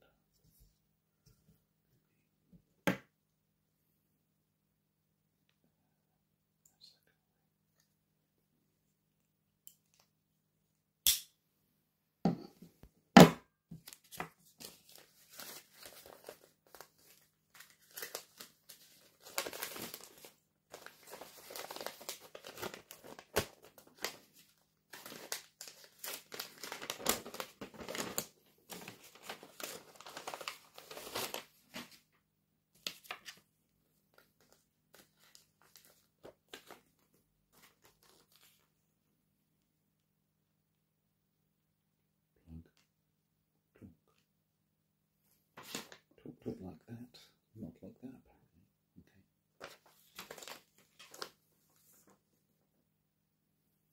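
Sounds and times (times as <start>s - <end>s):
packaging crinkling and tearing: 13.8s - 31.9s, 49.6s - 51.4s.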